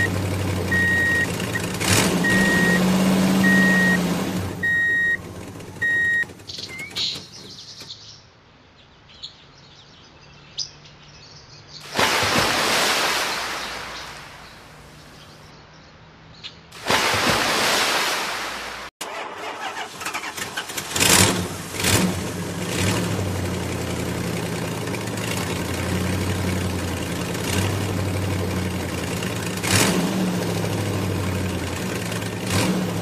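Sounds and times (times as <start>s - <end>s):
splashes: 0.0s - 5.2s, 11.8s - 15.5s, 16.8s - 33.0s
vehicle reversing alarm beeping: 0.0s - 7.2s
low engine hum: 0.0s - 8.2s, 11.9s - 15.5s, 18.4s - 33.0s
loud rushing hiss: 11.9s - 14.4s.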